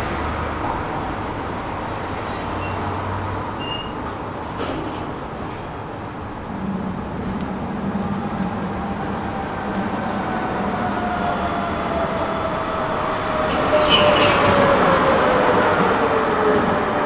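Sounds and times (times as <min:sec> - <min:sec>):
tram rumbling on rails: 0:00.0 - 0:17.0
high wheel squeal: 0:02.6 - 0:04.0, 0:10.9 - 0:16.0.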